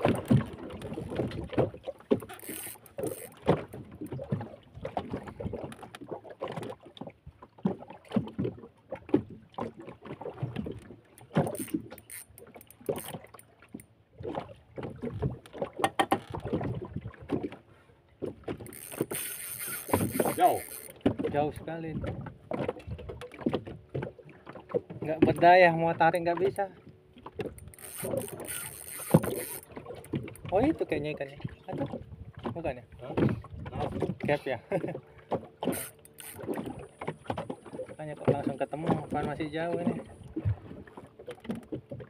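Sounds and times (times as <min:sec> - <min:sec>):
rod and reel handling noise: 0:00.0 - 0:06.8, 0:10.4 - 0:13.9, 0:15.1 - 0:16.6, 0:18.2 - 0:21.3, 0:27.2 - 0:31.9, 0:35.3 - 0:40.3
boat knocks and creaks: 0:00.0 - 0:42.0
water splashes: 0:00.0 - 0:42.0.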